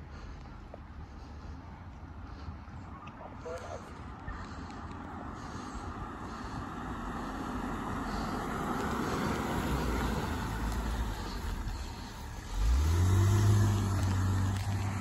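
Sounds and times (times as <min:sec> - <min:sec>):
vehicle driving past: 0:04.5 - 0:15.0.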